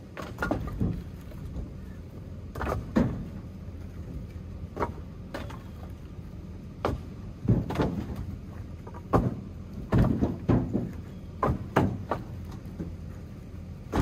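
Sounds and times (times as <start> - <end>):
steady low rumble: 0.0 - 14.0
firewood knocking and clattering: 0.1 - 1.7, 2.5 - 3.3, 6.8 - 13.0.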